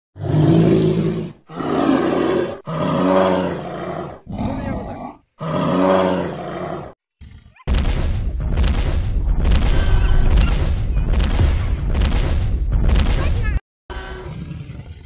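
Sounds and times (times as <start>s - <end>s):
dinosaur roars and growls: 0.2s - 7.6s, 14.2s - 15.0s
deep boom: 7.7s - 13.6s.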